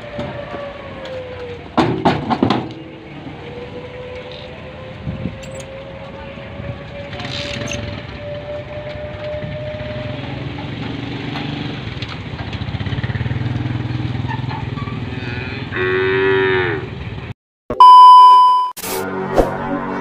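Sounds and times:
cow mooing: 15.1 - 17.0
loud electronic beep: 17.7 - 20.0.

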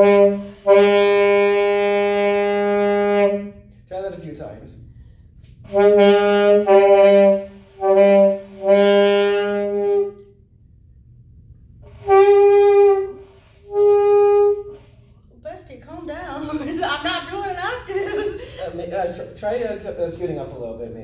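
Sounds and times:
saxophone held notes: 0.0 - 3.6, 5.7 - 10.3, 11.9 - 14.9.

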